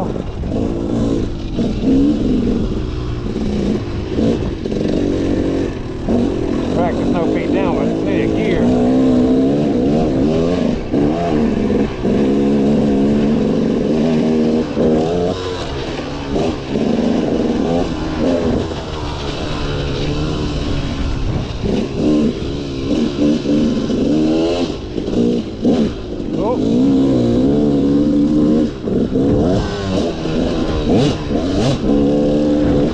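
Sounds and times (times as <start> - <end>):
dirt bike engine revving: 0.0 - 32.9.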